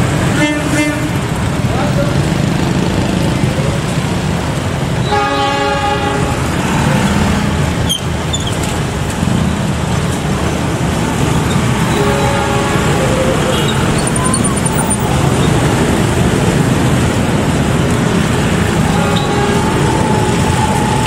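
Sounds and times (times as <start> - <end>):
diesel locomotive engine running: 0.0 - 21.0
locomotive horn blast: 0.3 - 1.3, 5.0 - 7.8, 11.8 - 14.7, 18.7 - 21.0.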